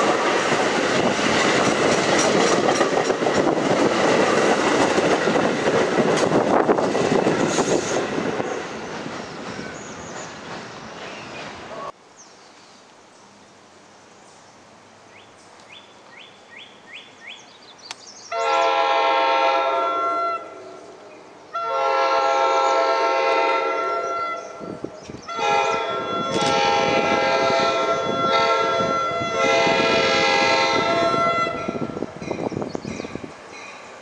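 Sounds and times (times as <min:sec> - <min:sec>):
train rumble: 0:00.0 - 0:12.0, 0:18.4 - 0:34.0
train horn blasts: 0:18.3 - 0:32.1.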